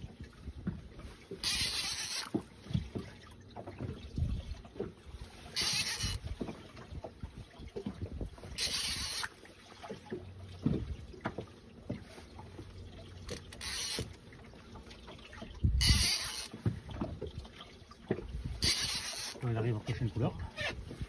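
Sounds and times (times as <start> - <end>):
water lapping against boat hull: 0.0 - 21.0
wind buffeting microphone: 4.0 - 5.3, 6.0 - 8.6, 15.5 - 17.4, 18.1 - 18.6.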